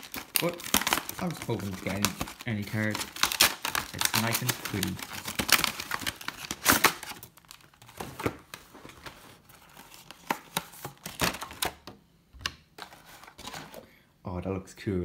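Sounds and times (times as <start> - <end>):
packaging crinkling and tearing: 0.0 - 11.8.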